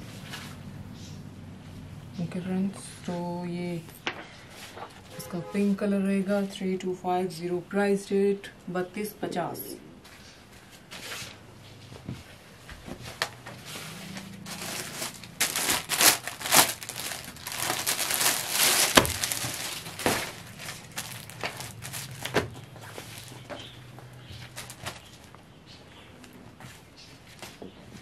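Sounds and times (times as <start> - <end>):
cloth rustling: 12.2 - 25.3
plastic packaging crinkling: 14.4 - 23.7, 24.3 - 25.4.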